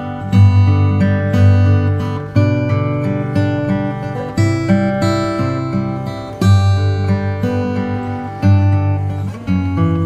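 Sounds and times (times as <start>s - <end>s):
strummed acoustic guitar: 0.0s - 10.0s.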